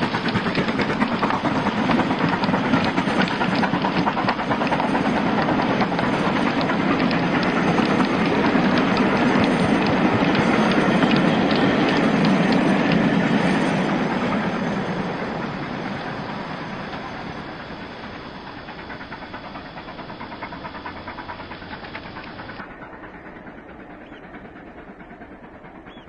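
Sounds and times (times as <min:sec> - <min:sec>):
regular ticks: 0:00.0 - 0:13.8, 0:18.0 - 0:22.7
model train wheels rumbling: 0:00.0 - 0:26.0.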